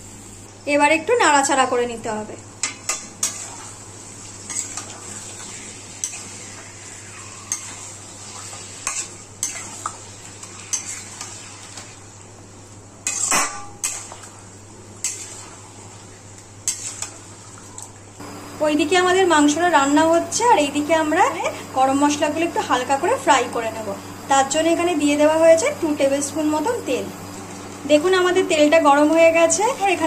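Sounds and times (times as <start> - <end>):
meat sizzling: 2.6 - 30.0
spatula scraping a pan: 4.5 - 11.9, 13.0 - 14.2, 15.0 - 15.7, 16.6 - 17.2.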